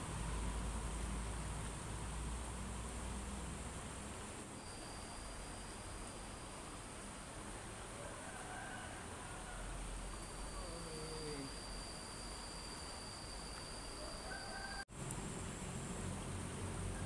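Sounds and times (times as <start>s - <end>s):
insect trilling: 4.4s - 7.2s, 8.6s - 15.8s.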